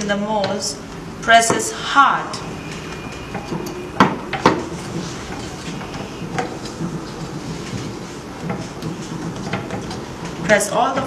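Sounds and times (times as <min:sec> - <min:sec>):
steady low background noise: 0:00.0 - 0:11.0
sharp knocks on heat press: 0:03.4 - 0:05.1.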